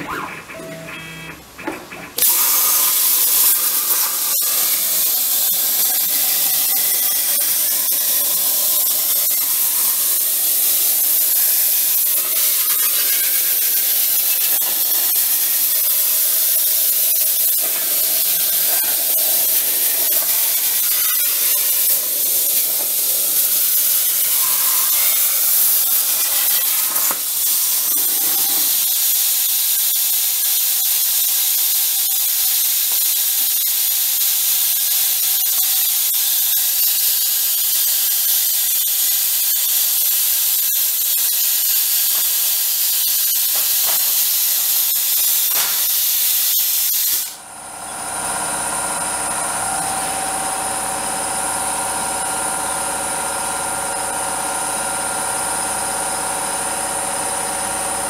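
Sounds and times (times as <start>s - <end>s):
plasma torch hissing: 2.1s - 47.4s.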